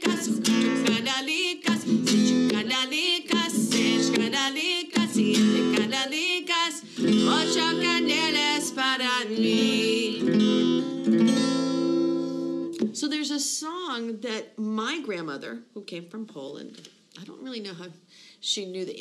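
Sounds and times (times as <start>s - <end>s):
woman singing: 0.0s - 10.9s
acoustic guitar strumming: 0.0s - 13.0s.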